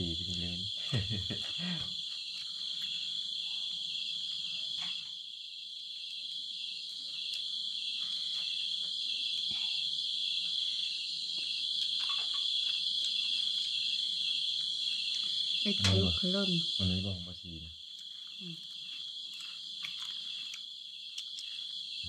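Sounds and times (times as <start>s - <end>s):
insects trilling: 0.0s - 22.0s.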